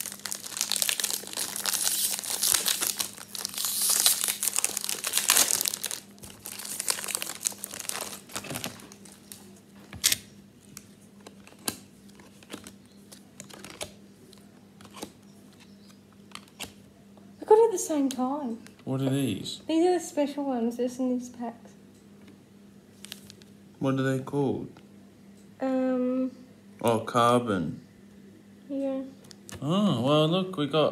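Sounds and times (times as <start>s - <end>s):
foil wrappers tearing and crinkling: 0.0s - 11.8s, 13.4s - 13.9s.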